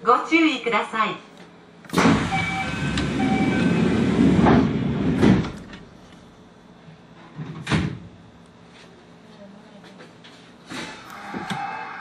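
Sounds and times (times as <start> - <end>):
train doors sliding shut: 1.9 - 5.8.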